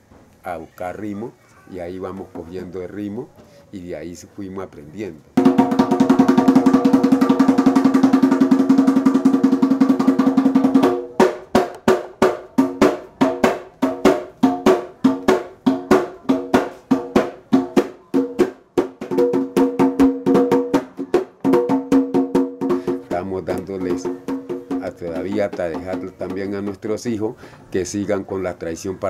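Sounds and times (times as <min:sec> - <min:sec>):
hand drum roll and strokes: 0:05.4 - 0:27.0.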